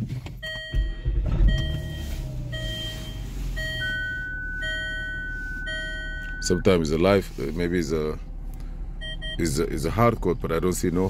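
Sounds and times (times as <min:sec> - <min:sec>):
long steady higher beep: 0:00.4 - 0:06.7, 0:09.0 - 0:09.4
car engine idling: 0:00.4 - 0:11.0
electronic chime beeping: 0:00.5 - 0:06.6.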